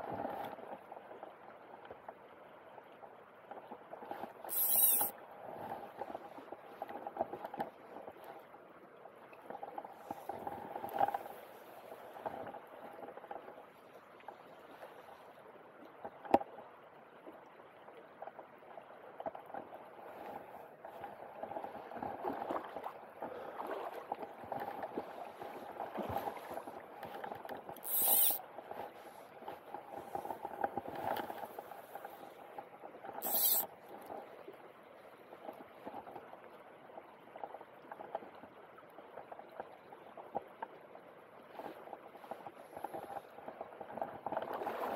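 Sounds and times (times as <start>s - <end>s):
short high hisses: 4.5s - 5.1s, 27.8s - 28.4s, 33.2s - 33.6s
river water gurgling over stones: 20.8s - 34.2s.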